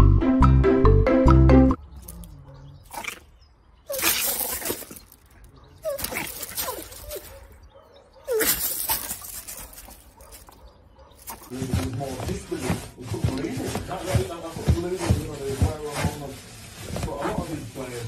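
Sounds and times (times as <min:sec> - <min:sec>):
small dog snarling and yapping: 0:02.0 - 0:07.6, 0:08.2 - 0:10.6.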